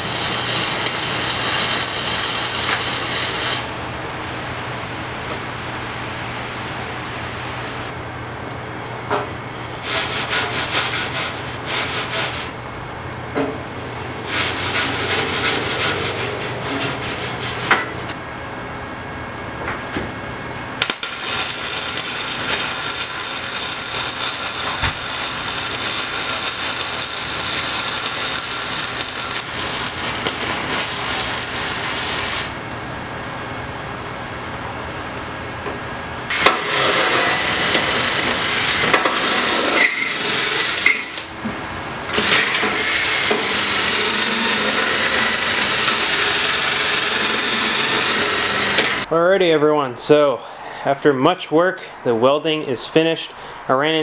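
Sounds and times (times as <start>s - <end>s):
welding arc crackling: 0.0s - 3.8s, 20.8s - 32.6s, 36.3s - 41.3s, 42.1s - 49.1s
noise with high whine: 0.0s - 50.3s.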